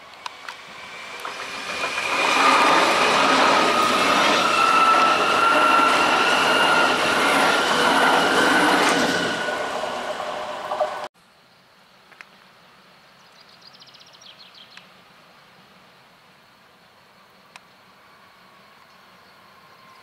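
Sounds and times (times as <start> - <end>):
electric train whine: 0.0 - 11.1, 17.2 - 20.0
train wheels rolling on rails: 0.0 - 11.1.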